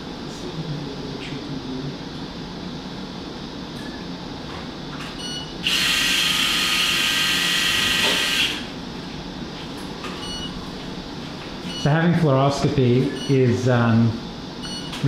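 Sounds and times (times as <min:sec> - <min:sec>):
power drill whining: 0:05.6 - 0:08.7
short electronic beeps: 0:10.2 - 0:10.5, 0:14.6 - 0:15.0.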